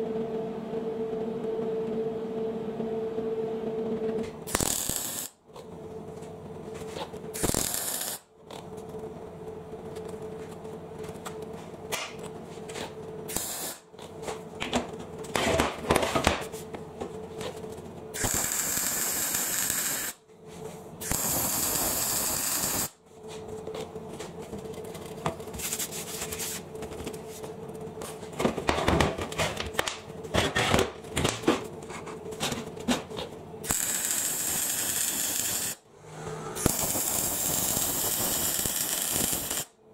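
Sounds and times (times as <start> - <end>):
steady hum: 0.0 - 39.9
welding arc crackle and hiss: 4.5 - 5.4, 7.3 - 8.3, 13.3 - 13.9, 18.2 - 20.2, 21.0 - 23.0, 33.6 - 35.8, 36.6 - 39.8.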